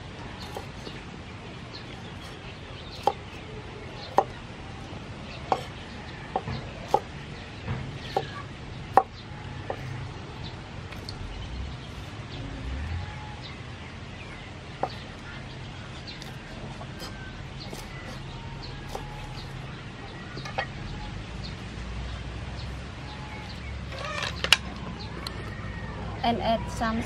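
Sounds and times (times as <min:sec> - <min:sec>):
cleaver chopping on wooden board: 0:00.4 - 0:01.0, 0:03.0 - 0:03.3, 0:04.1 - 0:04.4, 0:05.5 - 0:07.1, 0:07.7 - 0:09.1, 0:14.8 - 0:15.1, 0:16.2 - 0:19.6.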